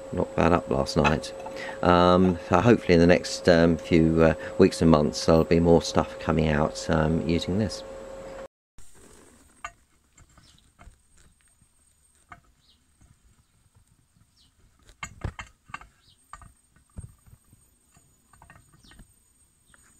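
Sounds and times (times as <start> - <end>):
faint high-pitched whine: 0.0 - 19.9.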